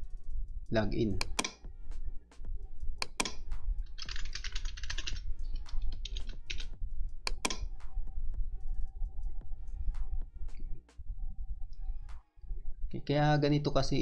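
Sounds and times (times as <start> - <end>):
keyboard typing: 1.2 - 1.6, 3.0 - 6.7, 7.3 - 7.7.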